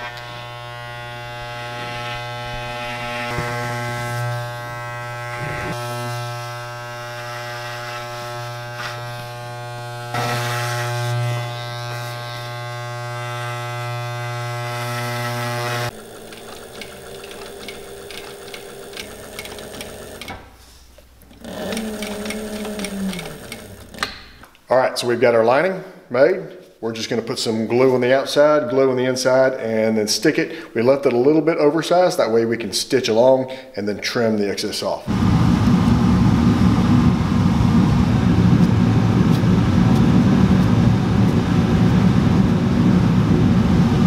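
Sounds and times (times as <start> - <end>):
electric hair clippers buzzing: 0.0 - 20.6, 21.2 - 24.4, 35.1 - 37.0, 38.0 - 43.8
sewing machine ticking: 15.9 - 20.4, 21.2 - 24.3.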